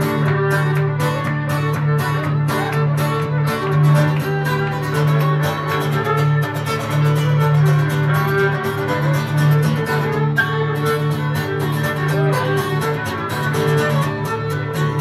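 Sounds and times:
fiddle playing melody: 0.0 - 15.0
guitar strumming: 0.0 - 15.0.

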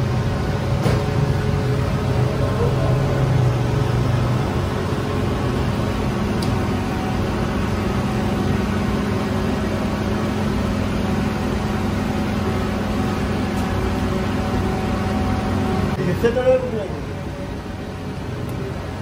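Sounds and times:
bread oven machine hum: 0.0 - 19.0
gas burner rushing noise: 0.0 - 19.0.

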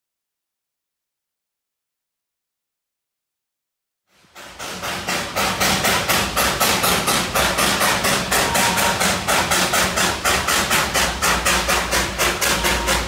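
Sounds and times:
steam locomotive chuffing: 4.1 - 13.0.

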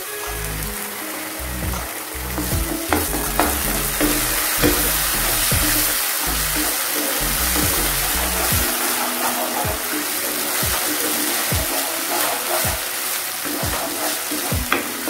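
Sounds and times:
background music: 0.0 - 15.0
masala sizzling in a pan: 0.0 - 15.0
spatula knocking and scraping pan: 2.4 - 5.9.

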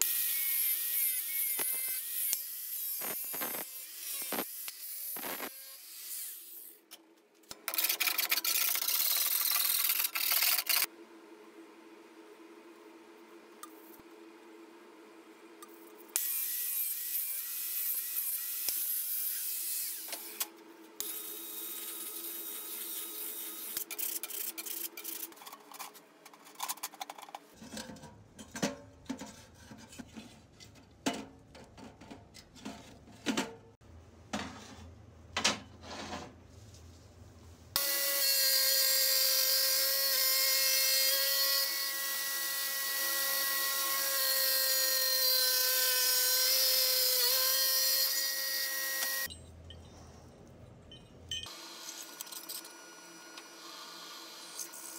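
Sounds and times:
angle grinder cutting metal: 0.0 - 6.8, 7.7 - 10.9, 16.1 - 25.4, 37.8 - 49.3.

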